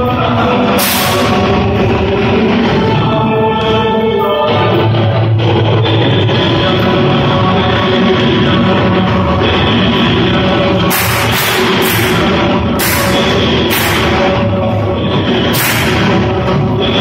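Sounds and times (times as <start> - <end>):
bright crash-like noise bursts: 0.7 - 1.7, 10.8 - 14.5, 15.4 - 16.4.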